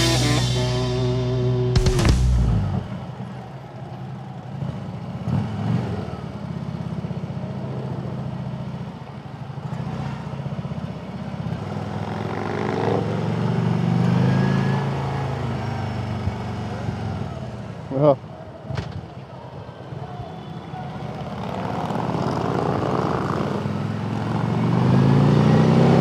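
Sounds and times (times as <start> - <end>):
motorcycle engine running: 0.0 - 3.0.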